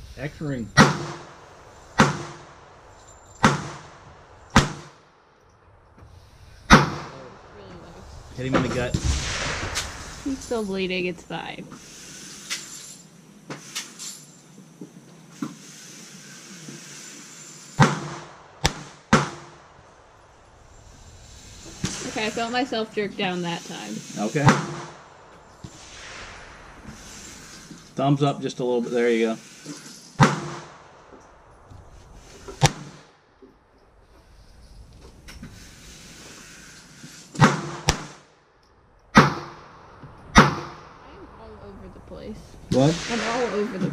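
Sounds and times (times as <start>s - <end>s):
pistol shots: 0.8s - 1.4s, 2.0s - 2.6s, 3.4s - 5.0s, 6.7s - 7.2s, 17.8s - 19.7s, 30.2s - 30.9s, 37.4s - 38.2s, 39.1s - 39.7s, 40.4s - 40.9s.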